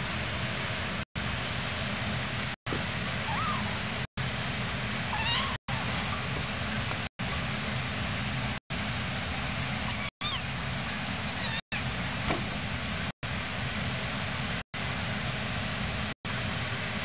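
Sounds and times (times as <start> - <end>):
kitten mewing: 3.2 - 3.8, 5.1 - 5.6, 9.9 - 10.5, 11.3 - 11.8.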